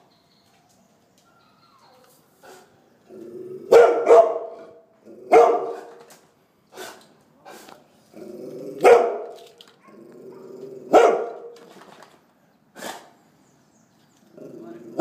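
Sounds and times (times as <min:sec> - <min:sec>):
dog barking: 0:03.7 - 0:06.0, 0:08.8 - 0:11.6.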